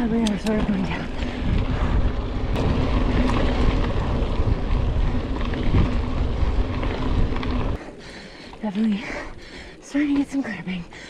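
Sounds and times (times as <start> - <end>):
wind rushing over microphone: 0.0 - 7.8
bike tyre and frame rattle: 0.0 - 10.4.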